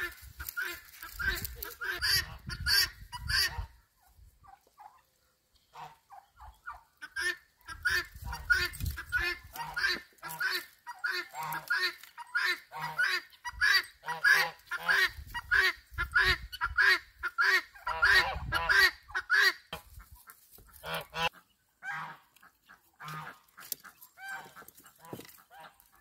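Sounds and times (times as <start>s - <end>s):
geese honking: 5.7s - 26.0s.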